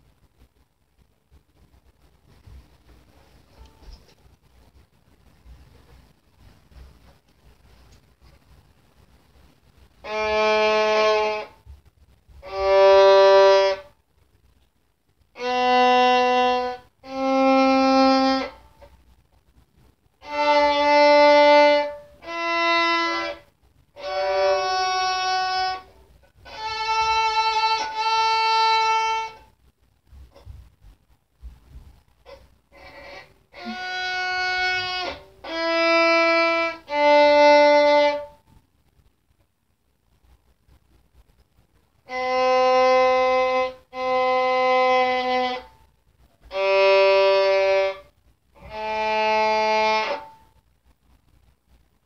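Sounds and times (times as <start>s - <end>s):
violin playing a slow scale: 10.0s - 11.6s, 12.4s - 13.9s, 15.4s - 18.6s, 20.2s - 29.4s, 32.7s - 38.4s, 42.1s - 45.7s, 46.4s - 50.3s.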